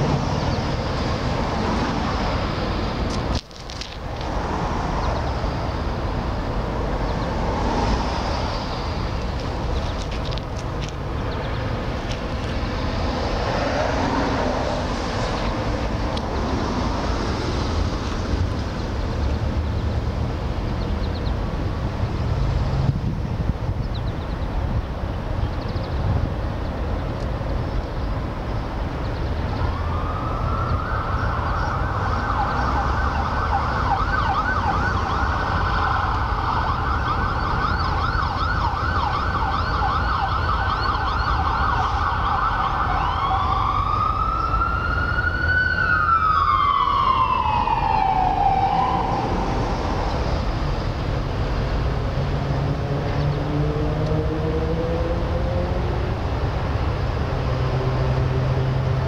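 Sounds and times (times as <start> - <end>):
low traffic noise: 0.0 - 59.0
emergency vehicle siren: 29.6 - 51.2, 51.8 - 56.4
vehicle engine speeding up: 51.8 - 59.0.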